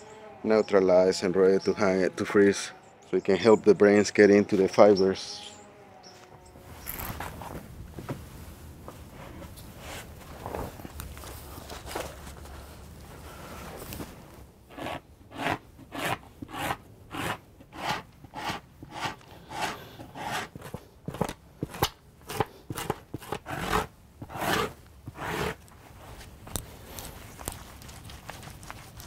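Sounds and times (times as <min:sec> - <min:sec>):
scraping strokes on wet hide: 0:14.0 - 0:26.2.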